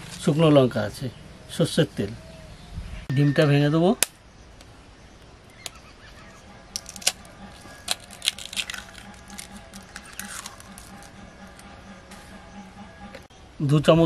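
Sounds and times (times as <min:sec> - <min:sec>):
knife cracking eggshells: 0:06.7 - 0:11.1.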